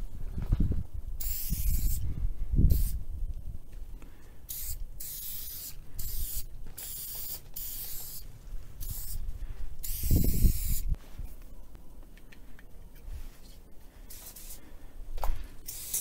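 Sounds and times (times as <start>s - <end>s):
spray paint can hissing: 1.2s - 2.0s, 2.7s - 3.0s, 4.5s - 9.2s, 9.8s - 11.0s, 14.1s - 14.6s, 15.6s - 16.0s.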